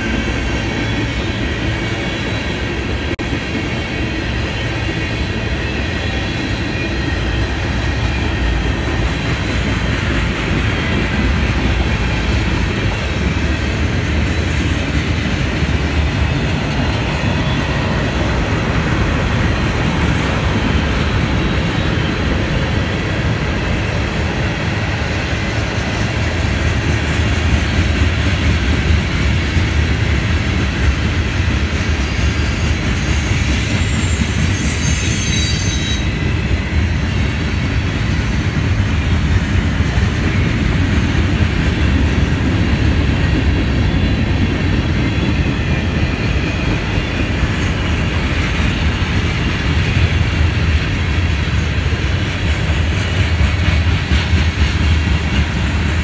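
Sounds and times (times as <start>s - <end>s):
train wheels rumbling on rail: 0.0s - 56.0s
high-pitched wheel squeal: 33.0s - 36.2s.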